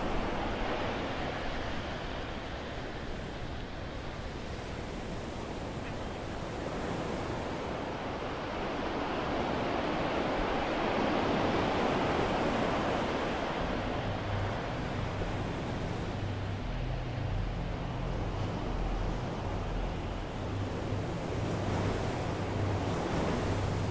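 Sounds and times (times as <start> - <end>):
low engine hum: 13.4 - 23.9.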